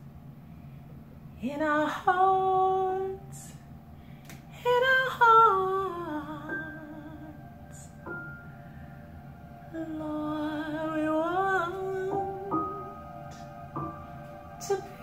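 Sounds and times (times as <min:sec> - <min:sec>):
woman singing: 0:01.4 - 0:03.6, 0:04.5 - 0:08.0, 0:09.7 - 0:13.6, 0:14.2 - 0:15.0.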